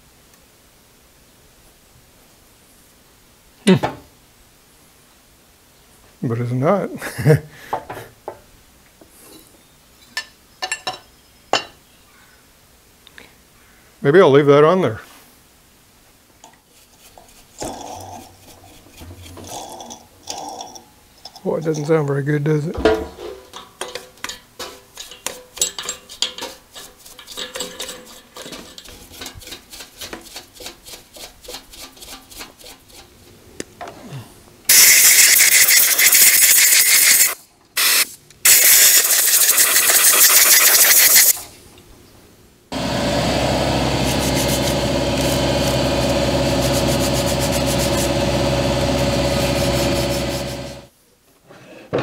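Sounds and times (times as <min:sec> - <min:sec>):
stiff brush scrubbing: 0:16.7 - 0:19.8, 0:43.8 - 0:50.9
compressed air blow gun hissing: 0:34.7 - 0:41.4, 0:42.8 - 0:50.9
steady mechanical hum: 0:41.4 - 0:50.9.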